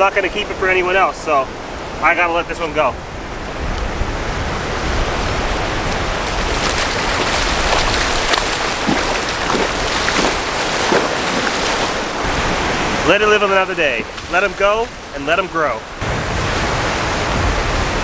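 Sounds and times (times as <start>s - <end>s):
ocean surf washing: 0.0s - 18.0s
footsteps splashing in water: 5.9s - 12.2s.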